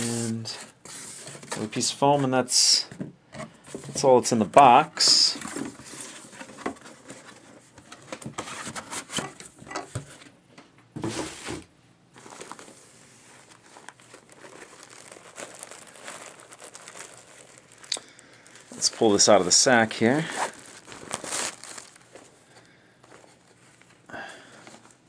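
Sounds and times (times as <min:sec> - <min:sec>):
packaging rustling and crinkling: 0:12.1 - 0:25.0.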